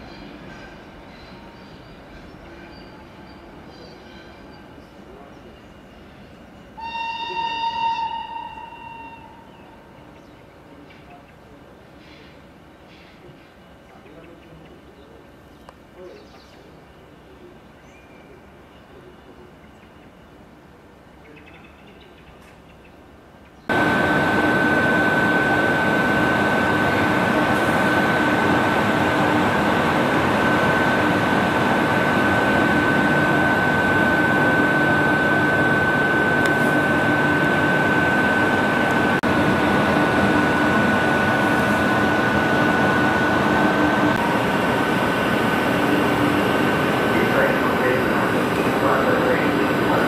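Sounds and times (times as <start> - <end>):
constant high whine: 23.7 - 50.0
locomotive cooling blowers rushing: 23.7 - 50.0.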